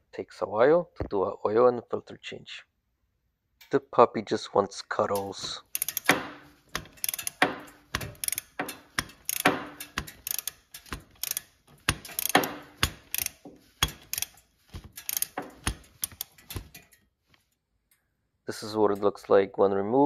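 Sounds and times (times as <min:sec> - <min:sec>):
hand ratchet clicking: 0:05.2 - 0:17.0.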